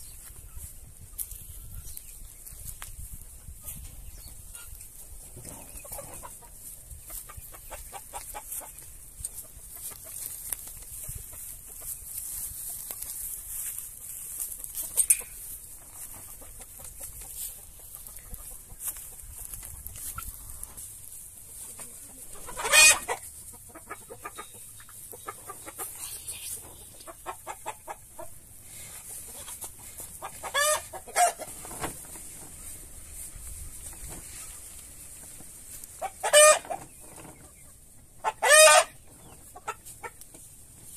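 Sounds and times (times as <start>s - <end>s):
chickens clucking: 0.0s - 40.9s
loud chicken call: 22.5s - 23.2s, 30.4s - 31.5s, 36.2s - 36.8s, 38.2s - 39.0s.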